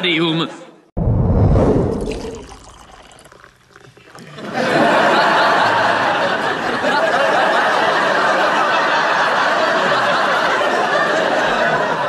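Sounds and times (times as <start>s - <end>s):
studio audience laughing: 4.4s - 12.0s.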